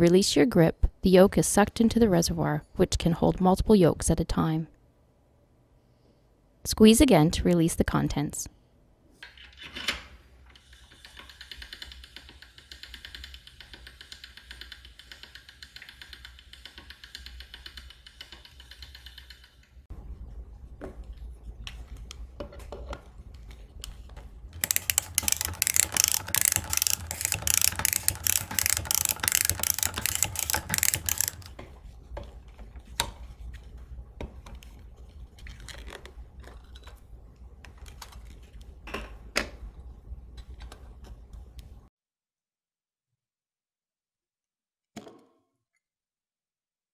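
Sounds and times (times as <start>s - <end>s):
can opener clicking: 24.6s - 31.5s
pasta machine rollers hissing: 24.6s - 31.5s.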